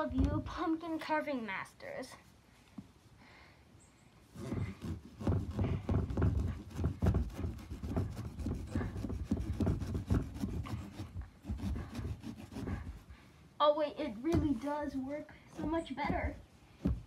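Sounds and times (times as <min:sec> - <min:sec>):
knife sawing through pumpkin: 0:04.3 - 0:13.2.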